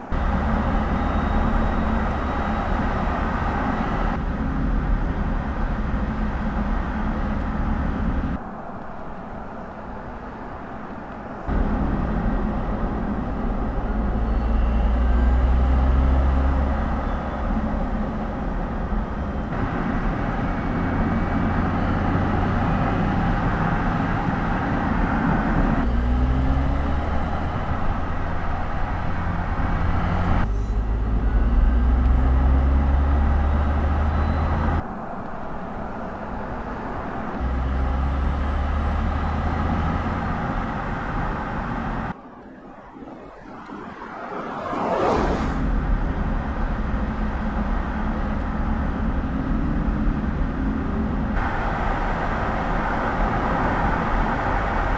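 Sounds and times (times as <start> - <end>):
short rising tones: 42.1 - 47.2.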